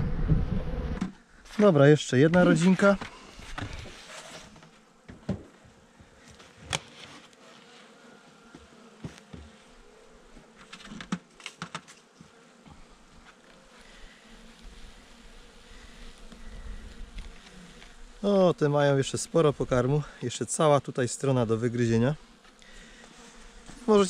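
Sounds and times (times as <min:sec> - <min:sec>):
bees buzzing: 0:00.2 - 0:24.0
knocks and clicks on wooden hive: 0:10.6 - 0:11.9.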